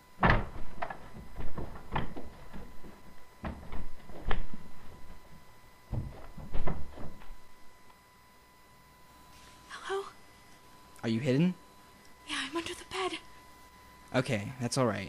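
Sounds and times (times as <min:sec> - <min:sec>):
thumps and knocks: 0:00.2 - 0:07.5.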